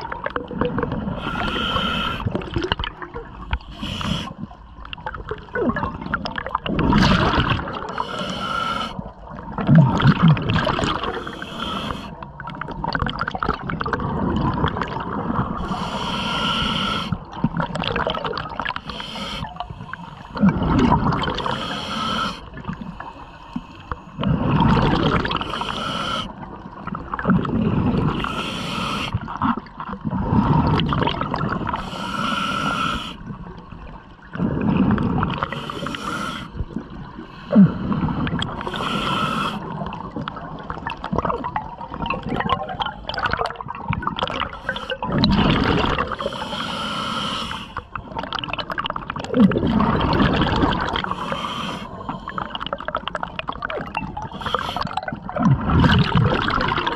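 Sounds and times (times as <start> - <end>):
exhaust bubbles gurgling: 0.0 - 3.6, 4.3 - 8.0, 9.0 - 15.9, 17.0 - 18.8, 19.6 - 21.7, 24.2 - 28.5, 29.1 - 31.8, 33.2 - 35.7, 36.5 - 46.5, 47.8 - 56.9
regulator inhale hiss: 1.2 - 2.4, 3.5 - 4.5, 7.9 - 9.1, 11.1 - 12.2, 15.6 - 17.2, 18.8 - 20.4, 21.4 - 24.2, 25.4 - 26.4, 28.2 - 29.2, 31.7 - 33.3, 35.5 - 36.6, 37.3 - 39.8, 44.5 - 45.0, 46.1 - 47.9, 51.0 - 52.6, 54.3 - 54.9.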